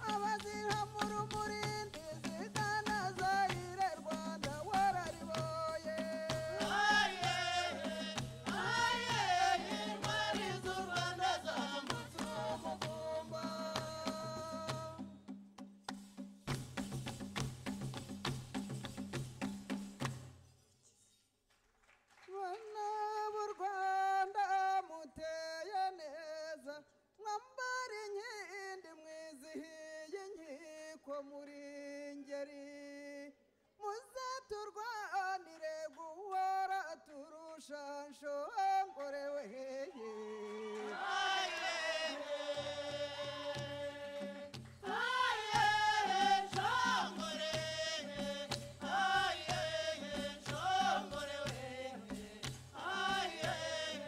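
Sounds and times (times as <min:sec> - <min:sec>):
choir singing: 0:06.3 - 0:14.3, 0:39.9 - 0:54.0.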